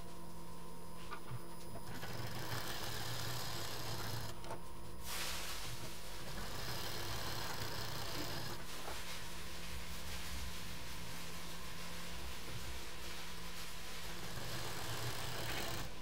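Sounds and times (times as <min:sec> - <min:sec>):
sewing machine running: 0:01.9 - 0:04.4, 0:06.2 - 0:08.6, 0:14.0 - 0:16.0.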